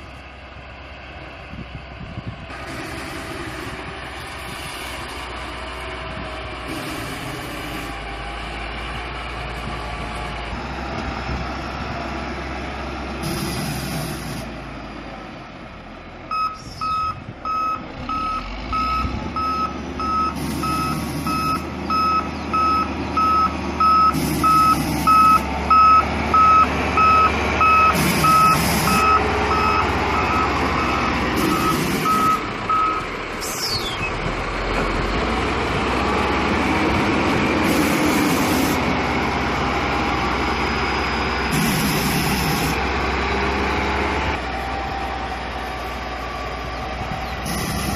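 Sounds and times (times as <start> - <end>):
diesel engine running: 0.0 - 47.9
backup alarm beeping: 16.3 - 33.0.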